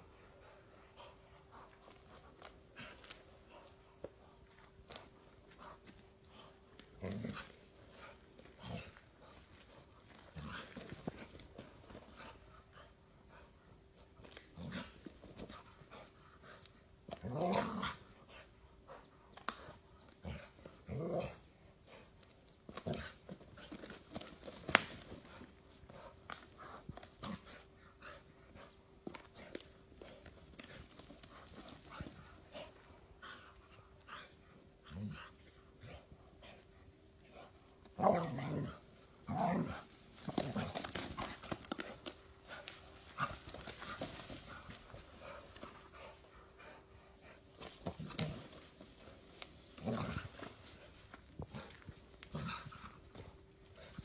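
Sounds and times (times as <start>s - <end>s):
faint steady hum: 0.0s - 54.0s
dog growling: 17.1s - 18.4s.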